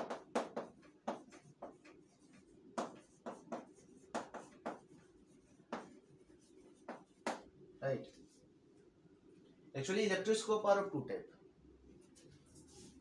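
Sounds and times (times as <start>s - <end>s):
chalk writing on blackboard: 0.0s - 7.5s, 12.0s - 13.0s.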